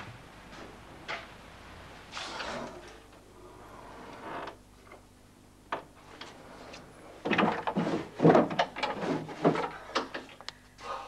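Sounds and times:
drawers clattering and sliding: 7.2s - 9.8s.

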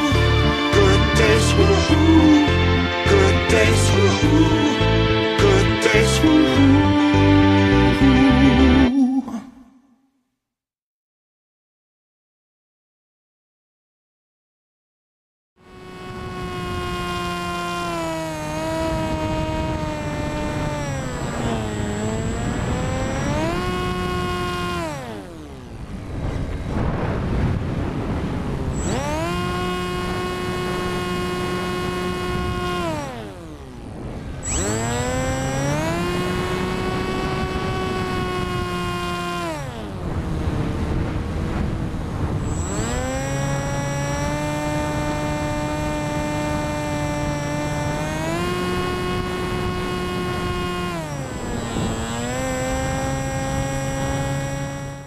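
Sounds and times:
electric motor and propeller whine: 0.0s - 8.9s, 15.6s - 55.0s.

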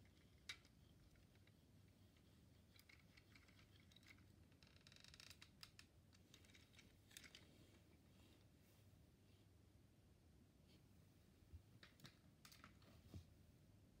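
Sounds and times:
plastic parts clicking and rattling: 0.0s - 7.7s, 11.8s - 12.8s.

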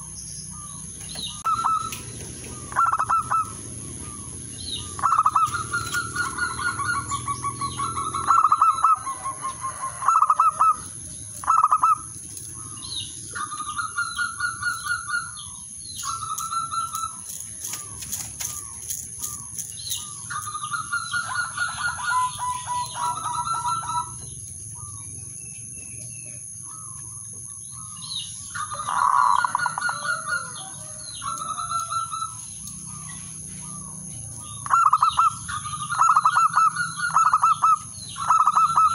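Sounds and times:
dove cooing: 0.0s - 25.1s, 26.0s - 38.9s
wings fluttering: 5.0s - 7.4s, 16.1s - 24.5s.

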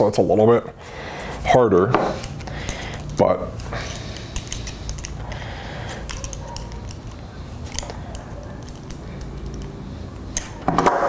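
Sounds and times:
wire metallic clicks: 2.2s - 10.6s.

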